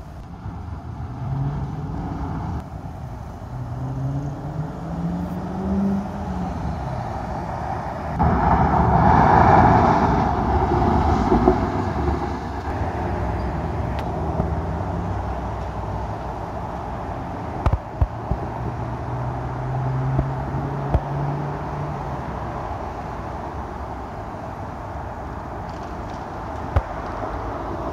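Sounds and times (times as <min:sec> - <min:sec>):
street traffic: 0:00.0 - 0:27.9
car engine accelerating: 0:03.4 - 0:13.4.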